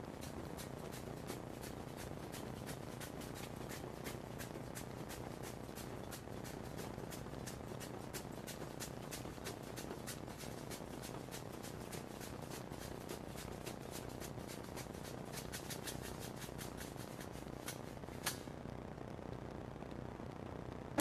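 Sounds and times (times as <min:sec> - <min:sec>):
low hiss: 0:00.0 - 0:21.0.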